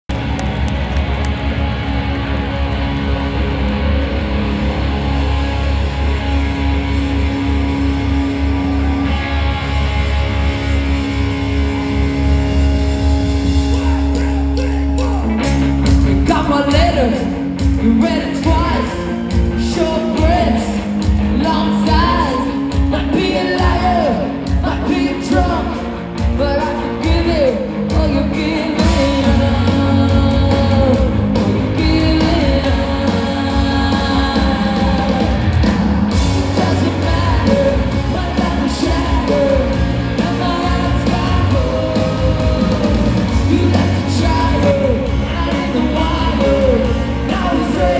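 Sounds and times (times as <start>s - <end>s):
ska-punk band playing: 0.1s - 47.9s
woman singing: 26.4s - 35.6s.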